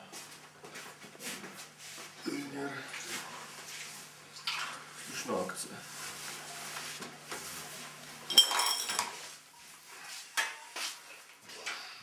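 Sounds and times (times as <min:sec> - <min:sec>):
dishes and cutlery clinking: 0:08.3 - 0:09.2.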